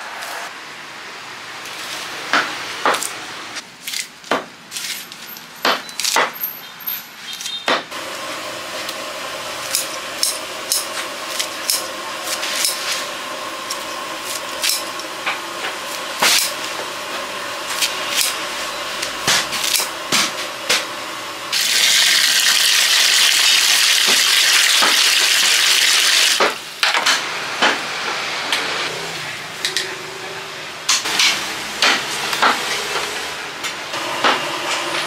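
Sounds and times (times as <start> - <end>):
mechanical hum with held tone: 0.0 - 35.0.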